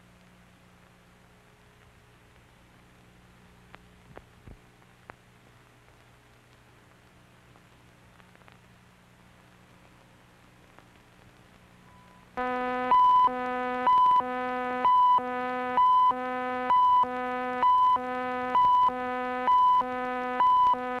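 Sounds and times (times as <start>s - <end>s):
faint low hum: 0.0s - 21.0s
steady buzzy tone: 10.7s - 21.0s
high beeps: 12.9s - 15.2s, 15.8s - 18.0s, 18.6s - 20.8s.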